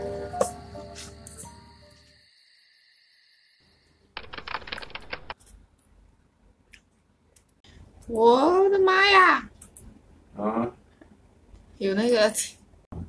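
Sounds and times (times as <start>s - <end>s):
background music: 0.0s - 2.0s
typewriter key clicks: 4.2s - 5.4s.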